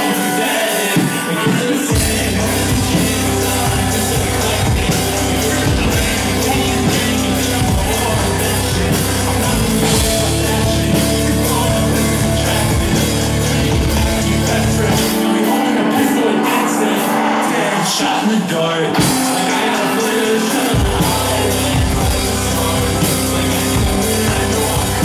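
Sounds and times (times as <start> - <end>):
loud live rock music: 0.0 - 25.0
person singing into a microphone: 0.0 - 25.0.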